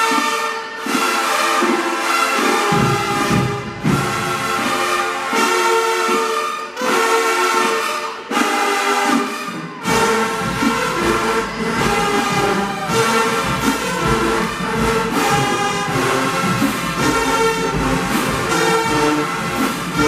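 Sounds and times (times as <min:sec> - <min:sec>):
brass holding loud chords: 0:00.0 - 0:20.0
steady drum beat: 0:02.4 - 0:06.3, 0:09.8 - 0:20.0.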